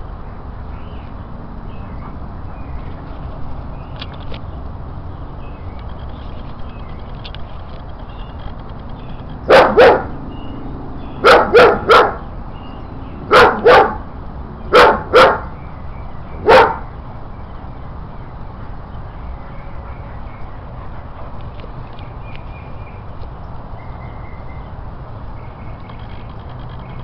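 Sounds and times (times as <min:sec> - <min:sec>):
dog barking: 0:09.5 - 0:10.1, 0:11.2 - 0:12.2, 0:13.3 - 0:14.0, 0:14.7 - 0:15.5, 0:16.4 - 0:16.8.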